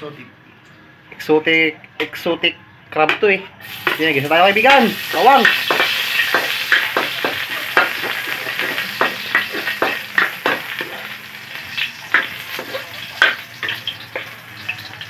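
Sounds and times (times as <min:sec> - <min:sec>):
garlic sizzling in a wok: 0:03.6 - 0:15.0
spatula scraping and knocking pan: 0:05.1 - 0:11.1, 0:12.1 - 0:14.4.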